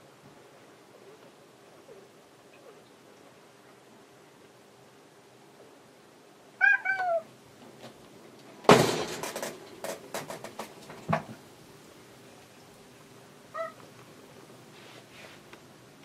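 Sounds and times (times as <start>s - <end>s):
cat meowing: 6.6s - 7.3s, 13.5s - 13.8s
thump on wire cage: 8.6s - 11.4s
light rattling knocks: 8.7s - 11.4s.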